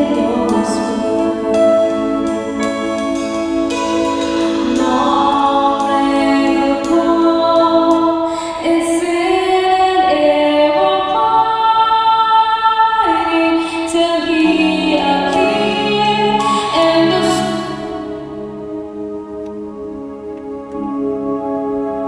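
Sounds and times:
singers holding long notes: 0:00.0 - 0:22.0.

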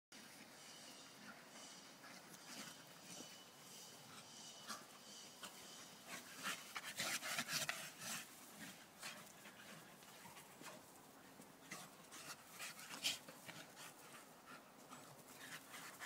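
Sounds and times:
dogs panting: 0:00.4 - 0:16.0.

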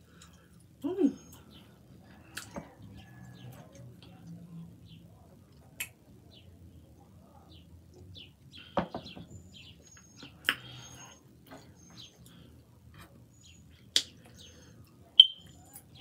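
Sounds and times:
chewing with wet mouth clicks: 0:02.3 - 0:02.6, 0:13.7 - 0:15.9
faint high chirps: 0:13.3 - 0:16.0.

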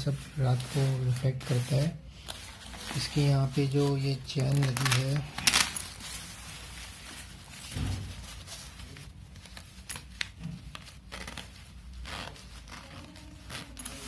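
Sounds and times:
fabric rustling and crinkling: 0:00.0 - 0:14.0
soft thump: 0:07.7 - 0:08.2
zip being worked: 0:11.1 - 0:14.0.

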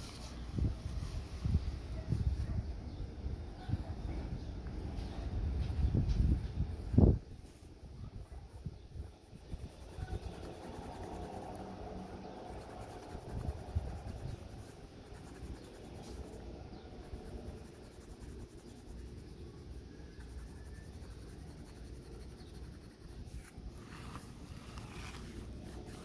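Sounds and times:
coloured pencil scratching on paper: 0:05.7 - 0:26.0.

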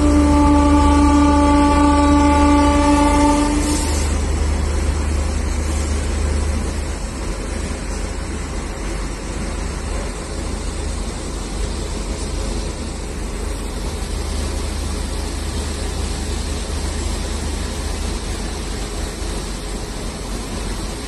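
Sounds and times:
locomotive horn: 0:00.0 - 0:04.5
train coaches rumbling past: 0:00.0 - 0:21.0.

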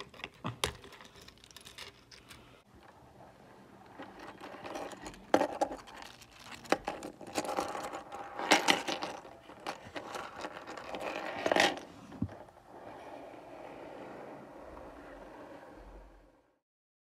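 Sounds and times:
plastic segments clicking and rattling: 0:00.0 - 0:02.5.

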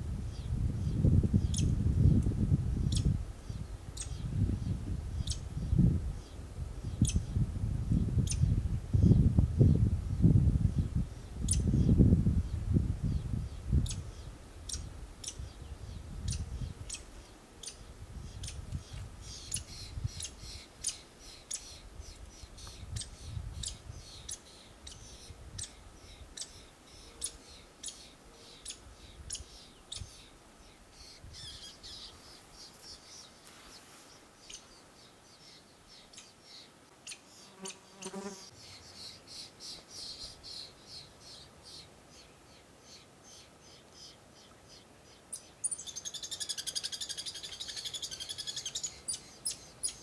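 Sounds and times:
woodpecker nestlings begging calls: 0:01.4 - 0:04.3, 0:05.2 - 0:05.4, 0:06.9 - 0:07.3, 0:16.2 - 0:30.3, 0:45.3 - 0:50.0.

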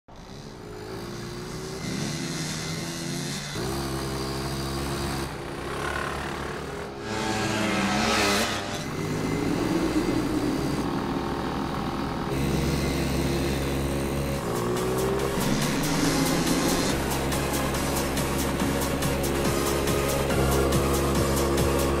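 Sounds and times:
scooter engine revving: 0:00.1 - 0:22.0.

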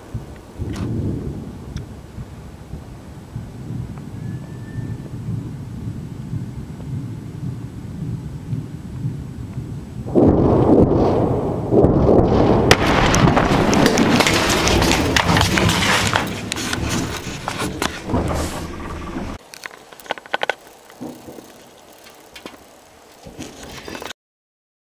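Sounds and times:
explosion rumbling and crackling: 0:05.0 - 0:19.4
scattered clicks and knocks: 0:13.0 - 0:24.1.

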